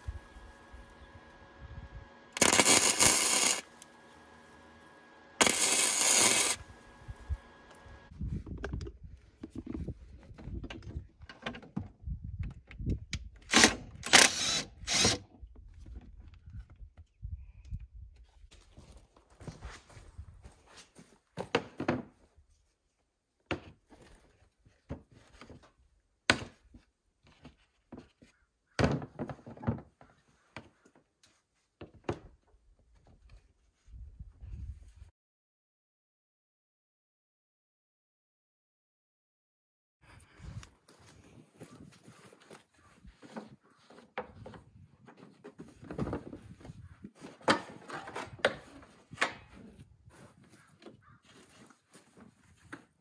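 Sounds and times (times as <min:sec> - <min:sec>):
clatter of parts: 0:02.4 - 0:03.6.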